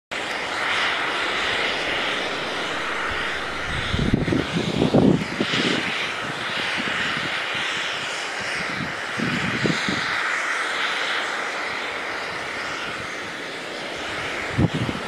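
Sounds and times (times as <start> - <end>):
low rumbling buffeting: 0.2 - 6.6
snowmaking gun hissing: 0.2 - 15.0.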